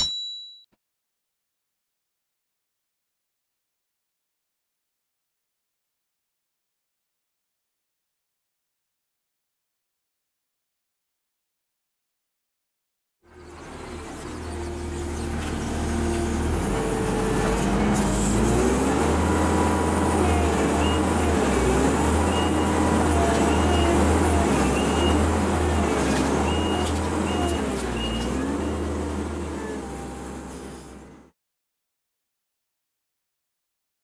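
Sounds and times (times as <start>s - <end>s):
diesel engine under heavy load: 13.3s - 31.3s.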